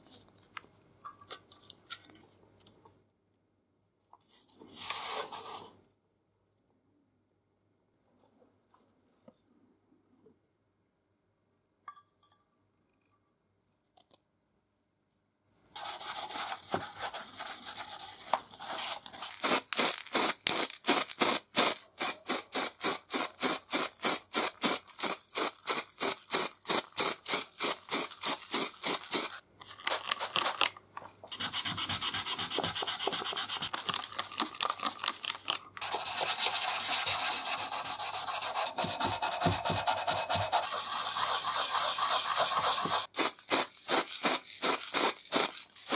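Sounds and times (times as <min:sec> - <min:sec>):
sandpaper rubbing on metal: 0:35.8 - 0:45.9.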